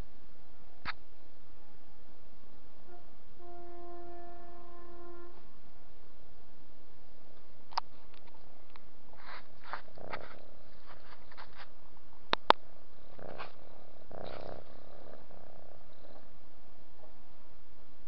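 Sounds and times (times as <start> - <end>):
cat purring: 9.1 - 11.6, 13.0 - 17.4.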